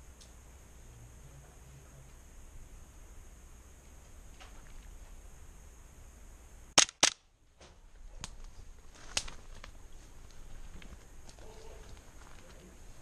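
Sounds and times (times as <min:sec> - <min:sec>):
airsoft pistol shots: 0:06.8 - 0:07.2.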